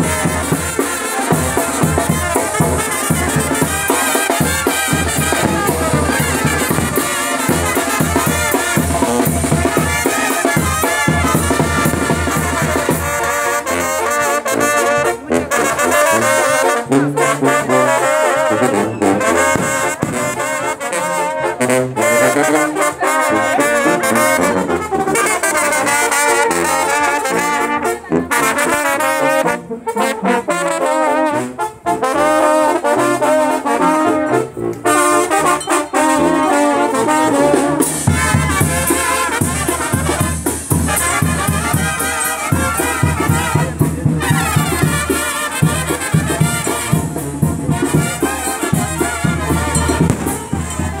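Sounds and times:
brass band playing: 0.0s - 51.0s
steady low beat: 49.4s - 51.0s.

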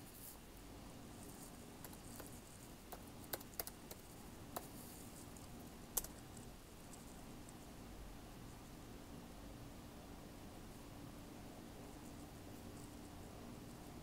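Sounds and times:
faint irregular clicks: 1.4s - 7.7s.

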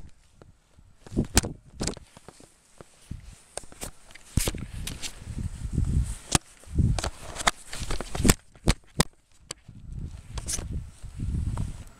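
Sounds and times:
handheld camera handling noise: 0.0s - 11.9s
footsteps in powder snow: 2.0s - 8.3s, 9.7s - 11.9s.

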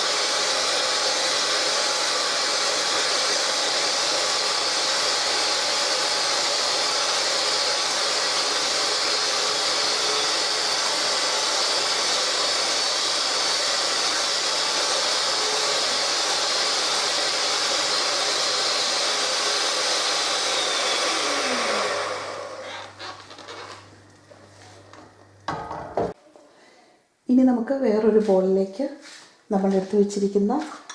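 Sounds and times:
electric hand mixer running: 0.0s - 23.9s.

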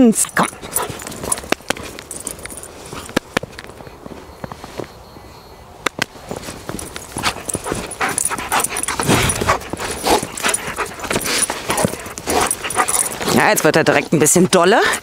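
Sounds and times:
dog panting: 0.4s - 1.5s, 6.8s - 15.0s.

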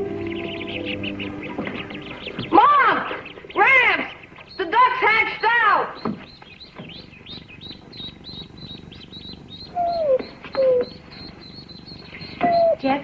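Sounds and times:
ducklings peeping: 0.0s - 13.0s
dog whining: 9.7s - 11.2s, 12.4s - 12.9s.

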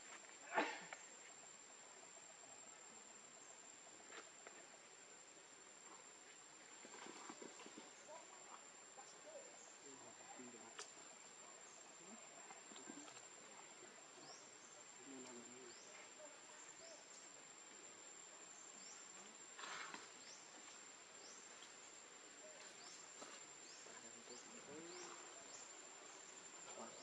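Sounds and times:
brief rustle: 19.6s - 20.3s.

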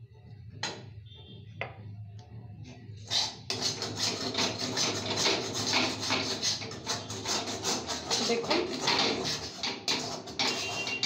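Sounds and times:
metal spatula scraping a pan: 3.0s - 11.0s.

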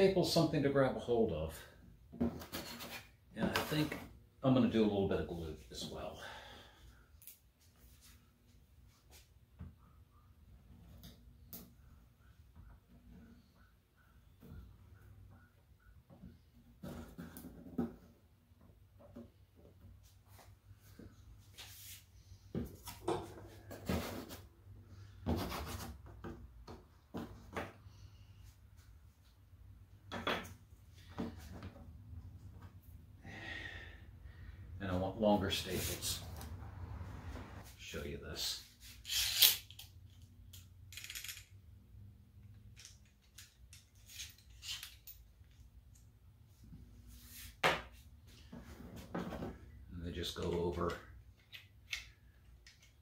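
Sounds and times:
wood strips scraping on board: 2.4s - 3.1s.

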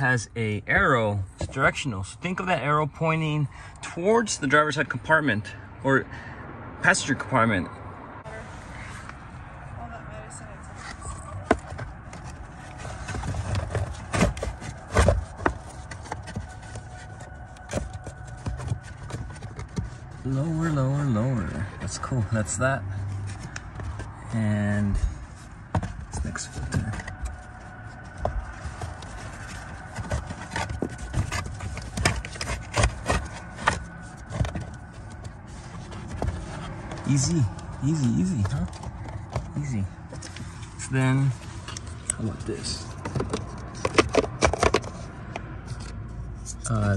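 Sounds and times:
air filter rubbing and scraping: 10.4s - 46.9s
filter frame scraping plastic housing: 25.8s - 37.8s.

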